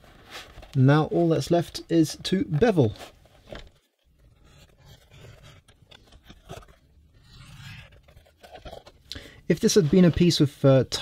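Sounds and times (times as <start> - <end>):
leather scraping on cutting mat: 6.4 - 8.8.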